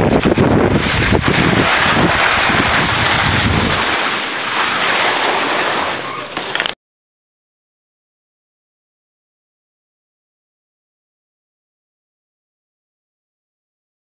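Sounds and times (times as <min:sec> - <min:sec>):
wind buffeting microphone: 0:00.0 - 0:04.2.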